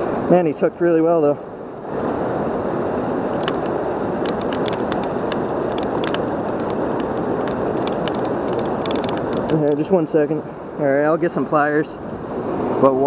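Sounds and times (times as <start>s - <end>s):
rushing river current: 0.0s - 13.0s
faint scattered clicks: 3.2s - 10.0s.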